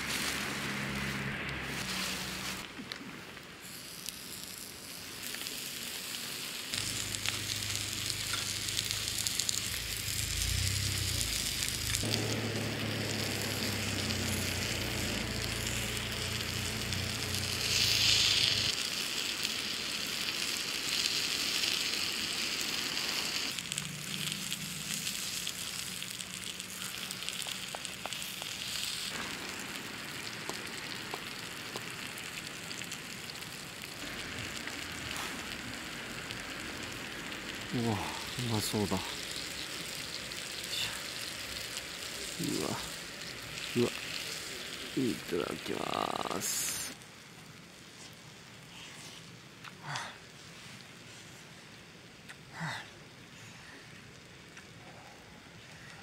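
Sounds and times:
batter sizzling: 0.0s - 56.0s.

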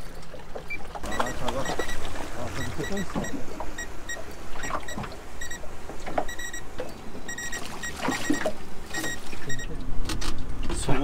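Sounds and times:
water lapping against boat: 0.0s - 10.0s
short high electronic beeps: 6.3s - 6.6s, 7.3s - 9.6s.

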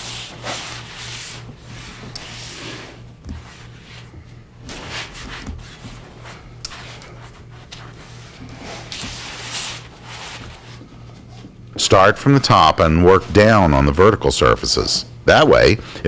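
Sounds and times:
cloth pad rubbing wood: 0.0s - 11.6s
steady low hum: 0.0s - 16.0s.

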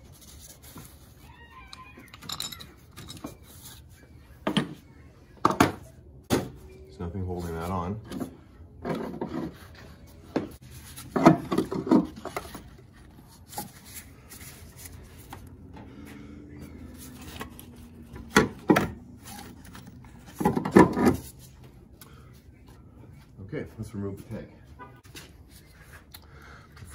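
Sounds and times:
knocking and scraping metal: 8.0s - 12.9s, 17.1s - 21.3s.

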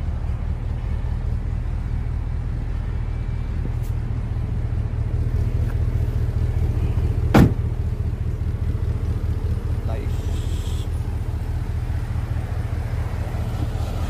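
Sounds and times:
pickup truck engine idling: 0.0s - 14.0s
tailgate shutting clunk: 7.2s - 7.8s.

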